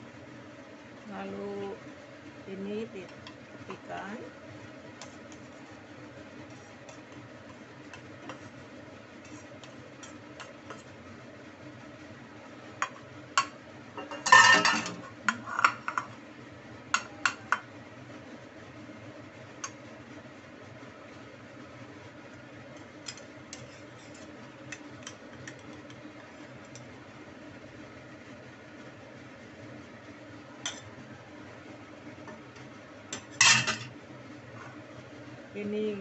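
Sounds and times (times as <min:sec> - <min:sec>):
spatula scraping: 0:06.4 - 0:08.6, 0:09.2 - 0:11.0, 0:23.1 - 0:26.6.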